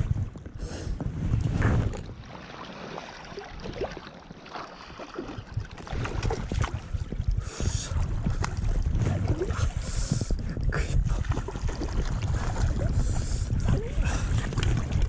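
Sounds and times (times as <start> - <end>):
wind rumbling on microphone: 0.0 - 2.5, 3.2 - 15.0
fish splashing in river water: 2.3 - 6.9.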